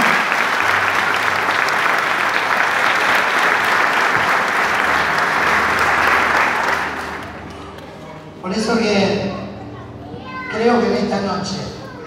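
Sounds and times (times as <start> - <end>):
audience applauding: 0.0 - 8.0.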